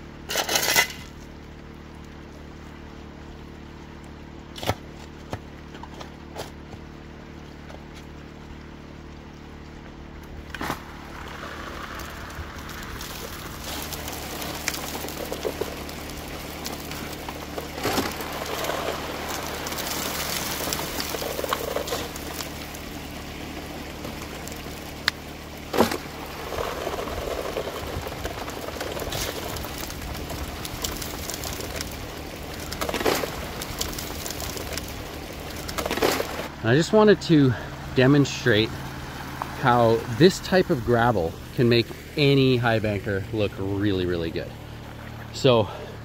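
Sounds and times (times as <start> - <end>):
pump engine drone: 0.0 - 46.0
shovel hitting gravel: 0.2 - 1.2, 12.8 - 23.3, 24.0 - 35.0, 35.6 - 36.5
water pouring and splashing: 0.4 - 45.5.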